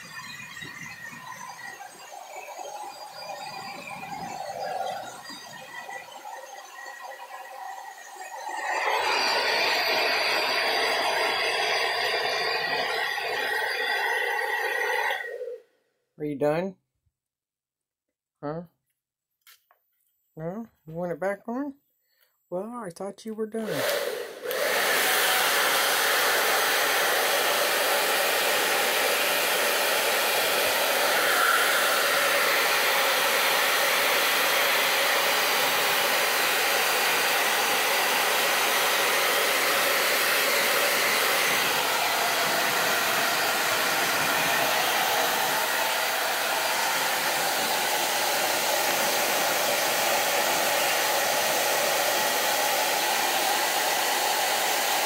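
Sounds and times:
hair dryer blowing air: 0:00.0 - 0:15.6, 0:23.6 - 0:55.0.

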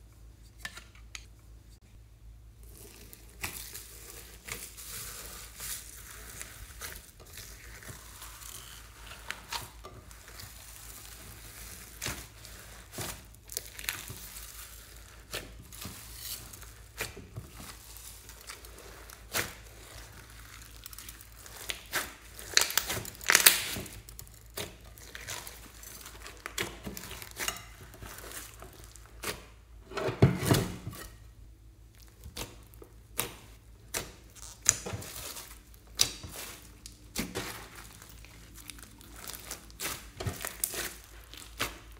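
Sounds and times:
slime crunching and squelching: 0:02.5 - 0:29.8, 0:31.5 - 0:41.9
slime popping: 0:07.4 - 0:27.4.

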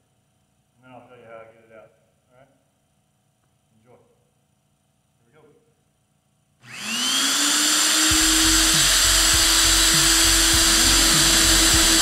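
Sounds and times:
electric core drill whining: 0:06.6 - 0:12.0
low uneven rumbling pulse: 0:09.1 - 0:12.0.

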